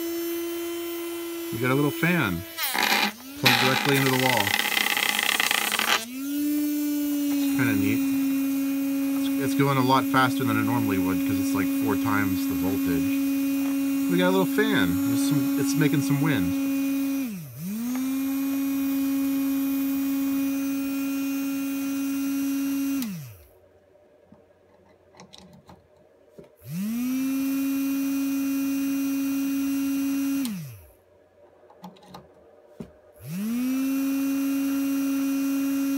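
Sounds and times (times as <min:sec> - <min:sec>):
small electric motor whining: 0:00.0 - 0:23.5, 0:26.6 - 0:31.0, 0:33.2 - 0:35.9.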